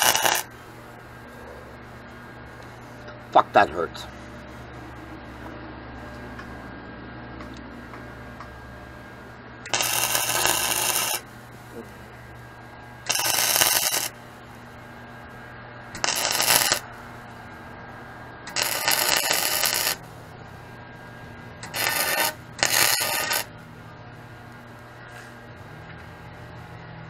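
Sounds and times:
welder arc crackling: 0.0s - 0.6s, 9.6s - 11.7s, 13.0s - 14.2s, 15.9s - 16.9s, 18.4s - 20.1s, 21.6s - 23.5s
steady low hum: 0.0s - 27.0s.

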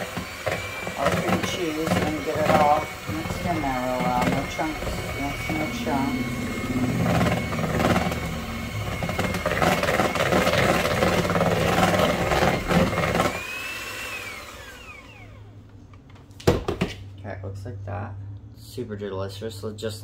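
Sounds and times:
electric hand mixer whining: 0.0s - 15.7s.

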